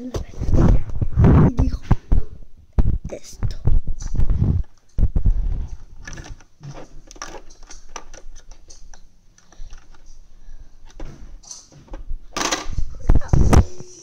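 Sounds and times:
plastic toys clicking: 0:06.0 - 0:10.0.

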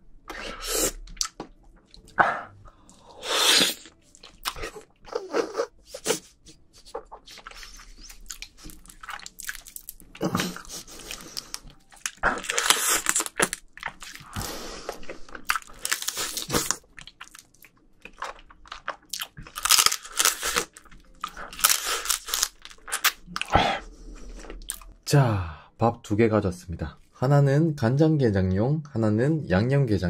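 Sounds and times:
wet biting and crunching: 0:01.0 - 0:02.2, 0:02.9 - 0:05.0, 0:06.8 - 0:23.6.

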